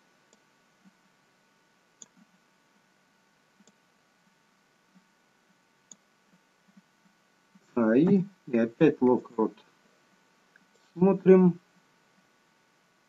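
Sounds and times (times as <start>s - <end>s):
computer mouse clicking: 0.3s - 1.1s, 2.0s - 2.9s, 3.6s - 3.8s, 4.9s - 7.2s.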